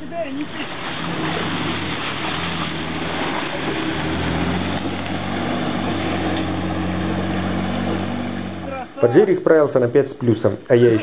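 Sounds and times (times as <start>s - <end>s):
engine at high revs: 0.6s - 8.8s.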